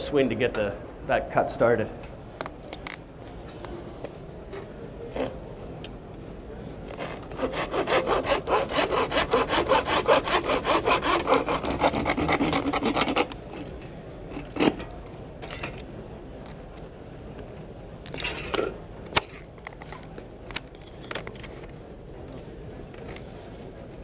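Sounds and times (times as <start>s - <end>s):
hand saw cutting wood: 7.0s - 13.4s.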